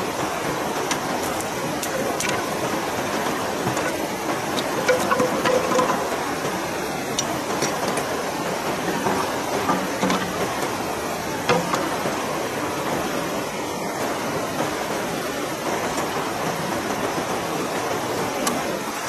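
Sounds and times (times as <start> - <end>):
river rushing over rocks: 0.0 - 19.0
bamboo poles knocking: 3.1 - 6.4, 8.8 - 10.8, 11.4 - 12.0.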